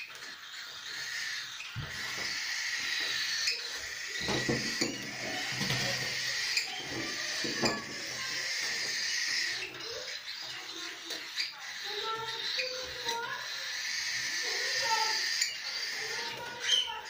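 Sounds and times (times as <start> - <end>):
parrot chicks begging calls: 0.0 - 17.0.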